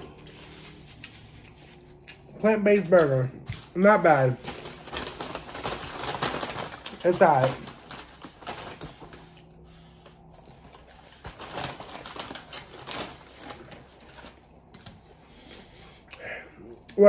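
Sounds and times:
paper bag rustling: 2.7s - 9.8s, 10.5s - 14.6s.

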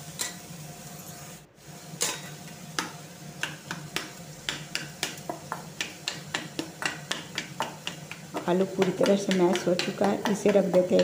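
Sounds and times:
potato masher knocking on steel bowl: 2.8s - 11.0s.

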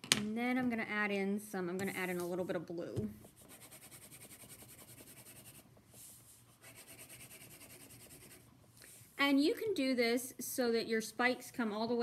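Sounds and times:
crayon scribbling on paper: 3.4s - 5.6s, 6.6s - 8.4s.

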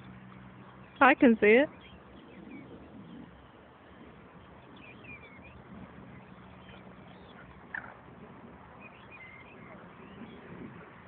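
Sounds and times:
faint bird chirps: 8.8s - 10.5s.

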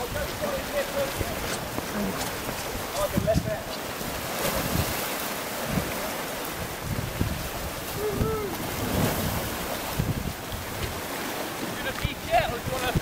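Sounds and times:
sea surf: 0.0s - 13.0s
wind: 0.0s - 13.0s
wind thumping on microphone: 0.0s - 13.0s.

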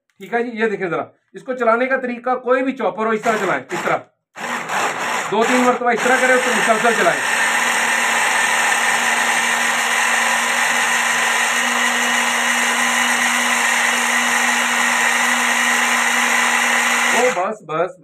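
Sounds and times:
hand blender motor whining: 3.2s - 17.5s.

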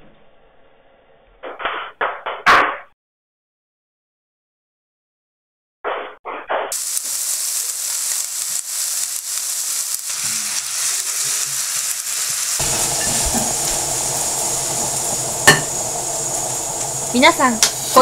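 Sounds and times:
food sizzling in a frying pan: 6.7s - 18.0s.

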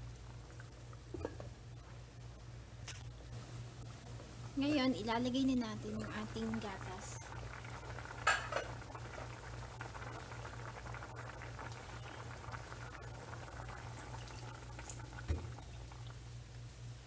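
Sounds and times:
soup simmering and bubbling: 0.0s - 2.4s, 5.8s - 16.4s
milk pouring thump: 15.2s - 15.6s.

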